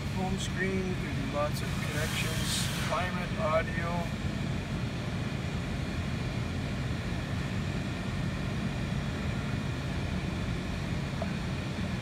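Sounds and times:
faint hum: 3.2 - 12.0.

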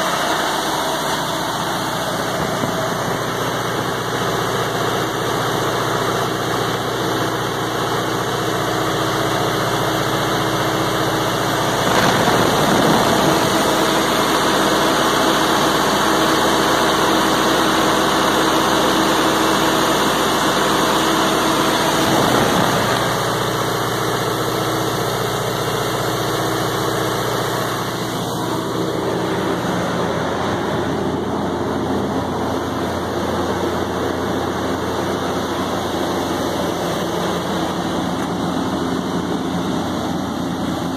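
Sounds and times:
diesel generator running: 0.0 - 40.9.

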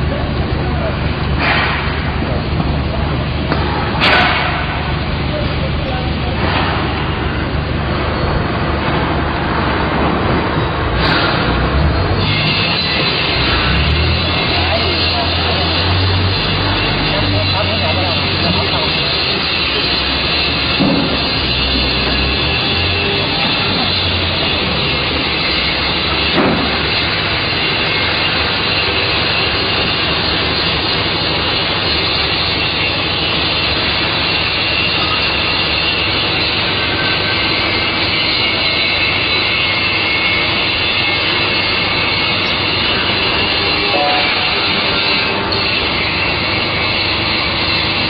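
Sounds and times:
loud machinery noise: 0.0 - 48.0.

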